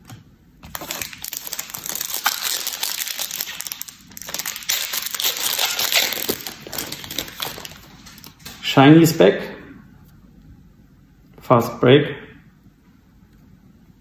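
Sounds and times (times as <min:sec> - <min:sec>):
wrapper crinkling and tearing: 0:00.6 - 0:08.7.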